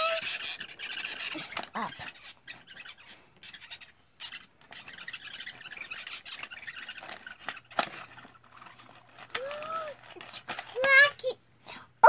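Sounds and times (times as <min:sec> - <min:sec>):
plastic toy egg cracking: 0:00.0 - 0:11.2.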